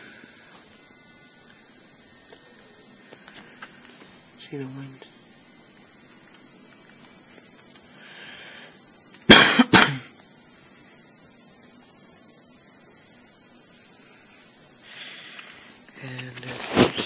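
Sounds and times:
faint hiss: 0.0 - 17.0
person coughing: 9.3 - 10.1.

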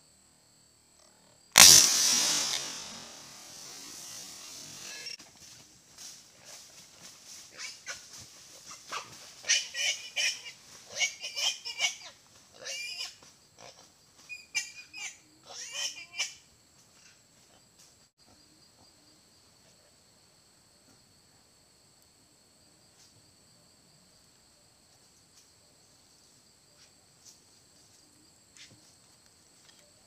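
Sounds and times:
wild boar squealing: 8.8 - 13.2, 14.4 - 16.4.

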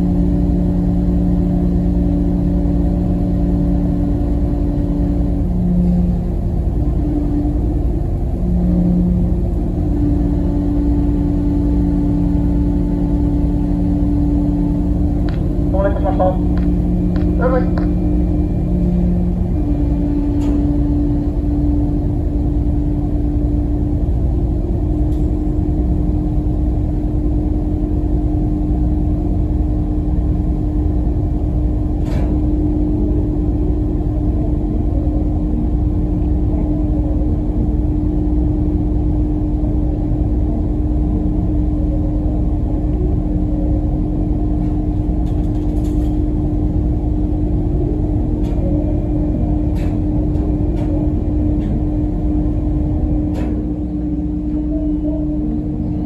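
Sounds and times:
diesel engines droning: 0.0 - 56.0.

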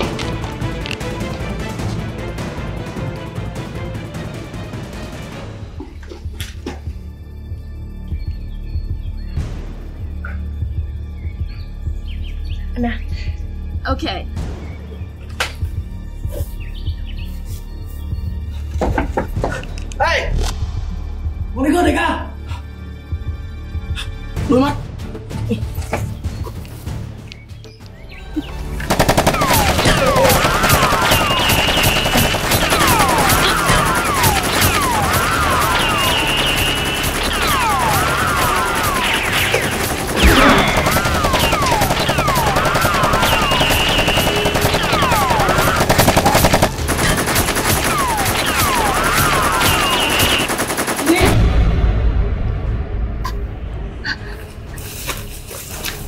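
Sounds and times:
automatic gunfire: 28.9 - 51.4
rapid machine-gun fire: 28.9 - 51.4
whining ricochets: 29.3 - 46.7, 47.8 - 50.6.

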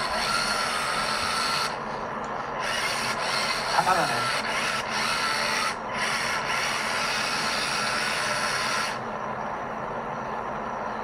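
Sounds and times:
electric motors whirring: 0.0 - 9.1.

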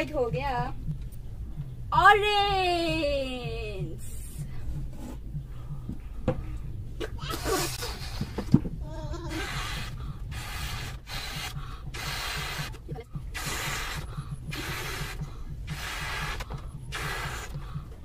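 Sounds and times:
breaths blowing up balloon: 4.1 - 18.0.

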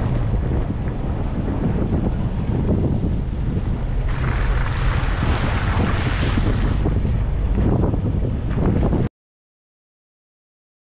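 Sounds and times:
car engine rumbling: 0.0 - 9.1
wind on microphone: 0.0 - 9.1
tyres splashing through water: 3.7 - 7.4.

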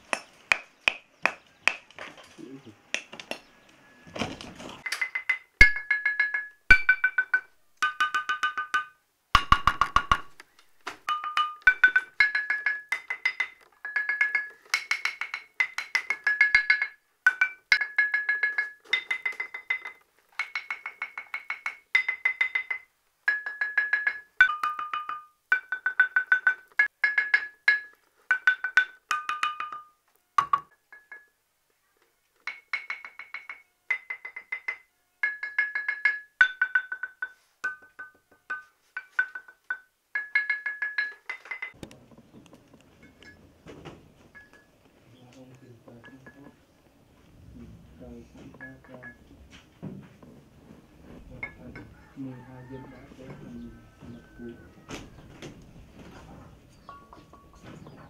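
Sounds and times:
stone lithophone struck with mallet: 0.0 - 2.0, 4.8 - 31.3.

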